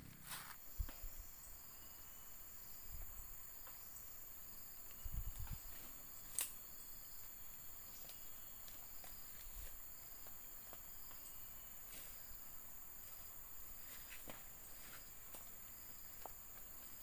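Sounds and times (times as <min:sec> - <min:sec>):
footsteps through undergrowth: 0:00.0 - 0:00.7, 0:07.8 - 0:12.4, 0:13.0 - 0:17.0
high insect drone: 0:00.0 - 0:17.0.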